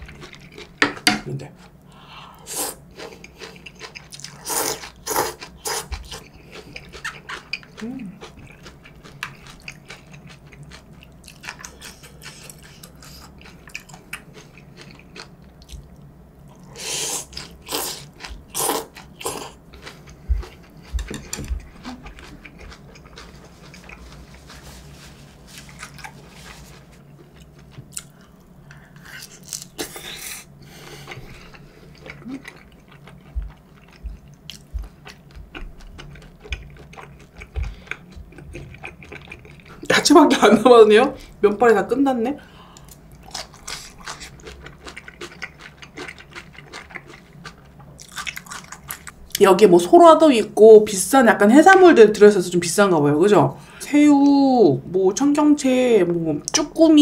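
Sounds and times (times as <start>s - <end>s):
chewing and smacking noodles: 0.0s - 0.8s, 2.9s - 16.7s, 17.3s - 30.0s, 30.9s - 39.9s, 42.8s - 49.4s.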